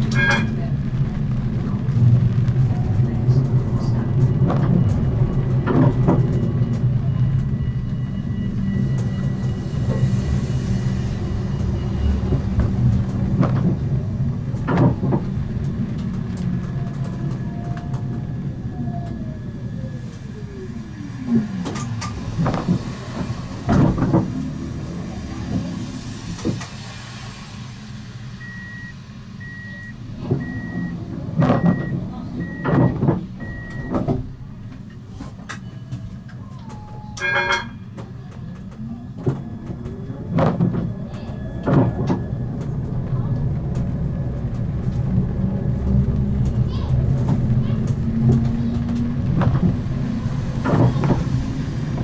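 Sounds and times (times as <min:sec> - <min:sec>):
tram running hum: 0:00.0 - 0:52.0
door warning beeps: 0:28.4 - 0:34.2, 0:35.6 - 0:37.7.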